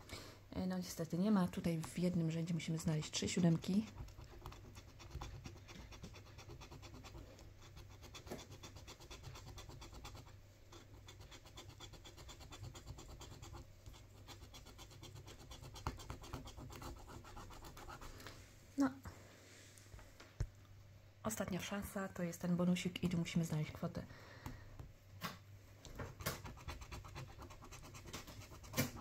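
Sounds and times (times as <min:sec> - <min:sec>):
scratch card being scratched: 0:03.4 - 0:18.0, 0:26.2 - 0:29.0.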